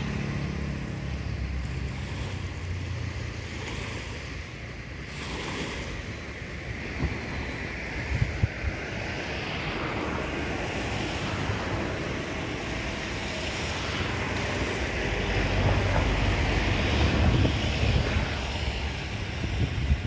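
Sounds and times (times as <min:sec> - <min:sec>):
river water: 0:00.0 - 0:20.0
wind buffeting microphone: 0:04.2 - 0:20.0
low rumble: 0:14.1 - 0:20.0.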